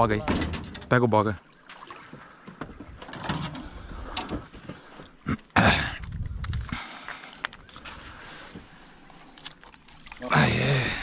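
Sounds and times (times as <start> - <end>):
knocks and clatter on a boat: 0.0 - 1.0, 2.0 - 5.2.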